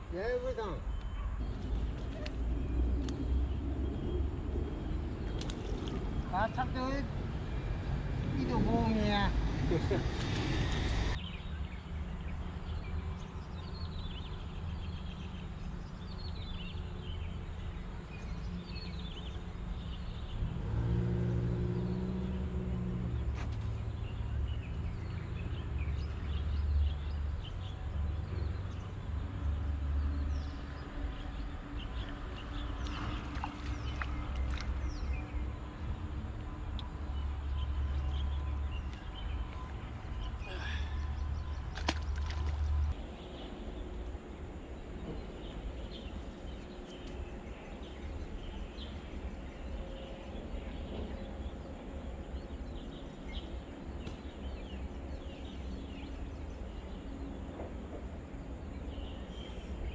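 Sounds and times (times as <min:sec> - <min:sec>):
small birds chirping: 0:00.0 - 0:21.0, 0:21.7 - 0:59.9
traffic rumble: 0:00.0 - 0:59.9
bird chirping: 0:00.1 - 0:09.4
vehicle engine hum: 0:01.4 - 0:59.9
noisy rush: 0:06.0 - 0:11.2
fish splashing: 0:32.8 - 0:34.8, 0:41.7 - 0:42.9.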